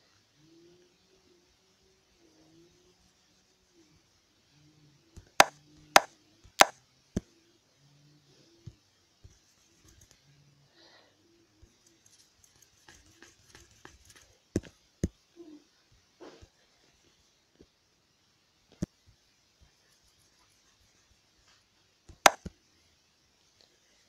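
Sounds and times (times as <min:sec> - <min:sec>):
taps on a touchscreen: 0:05.4 - 0:06.7, 0:22.1 - 0:22.5.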